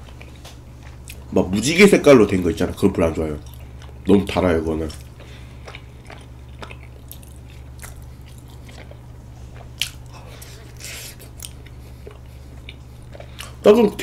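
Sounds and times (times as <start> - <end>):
chewing with wet mouth clicks: 0.0 - 1.3, 3.4 - 4.2, 4.9 - 13.7.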